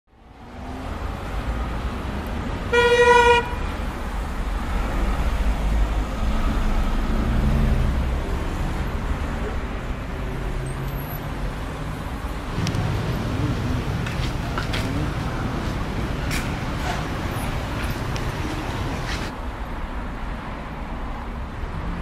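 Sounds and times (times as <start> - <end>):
road traffic: 0.1 - 22.0
vehicle horn toot: 2.7 - 3.7.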